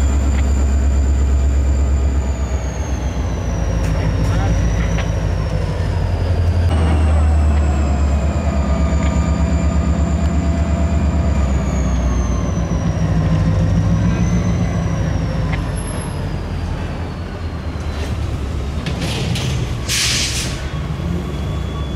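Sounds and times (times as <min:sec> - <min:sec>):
diesel locomotive engine running: 0:00.0 - 0:21.9
air hissing: 0:19.9 - 0:20.7.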